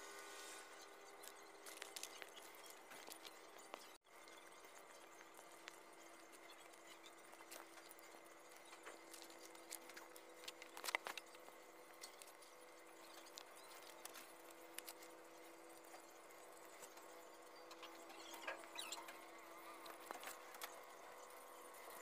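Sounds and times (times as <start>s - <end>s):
faint steady hum: 0.0s - 22.0s
string handling clicks and rustles: 6.4s - 12.5s.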